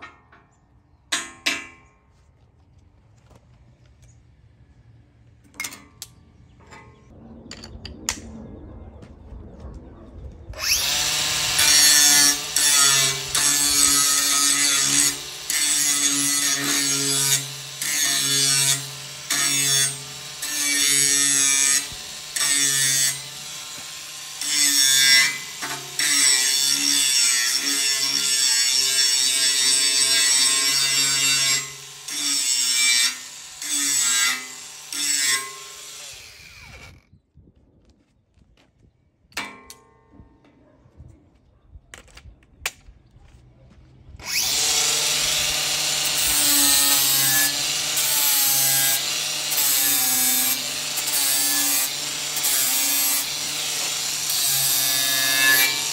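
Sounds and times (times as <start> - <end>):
angle grinder grinding steel: 10.6 - 37.0, 44.2 - 55.9.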